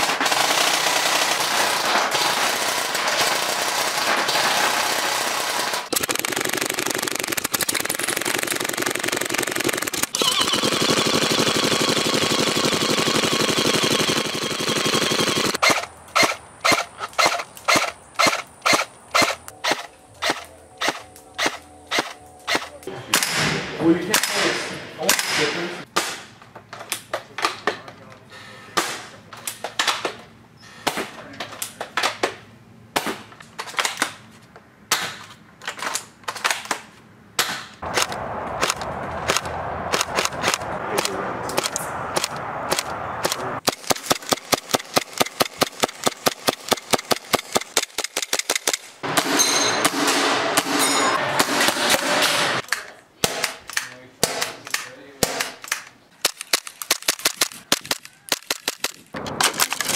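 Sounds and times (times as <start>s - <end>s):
airsoft guns firing: 0.0s - 26.3s, 37.4s - 52.6s, 53.2s - 59.9s.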